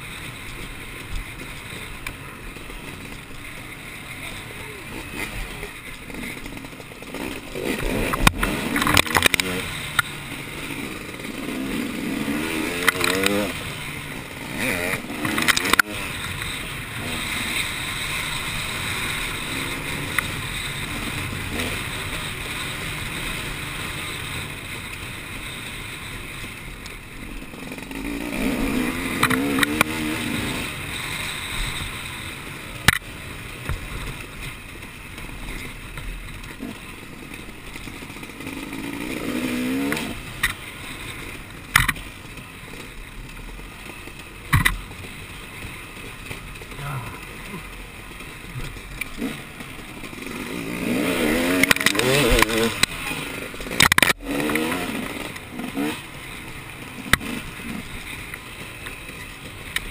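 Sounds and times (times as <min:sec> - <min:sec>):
race vehicle engine revving: 0:48.4 - 0:56.2.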